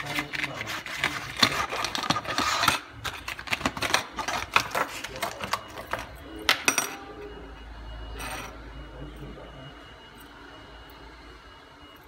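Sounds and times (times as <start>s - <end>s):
plastic packaging crackling: 0.0s - 6.1s.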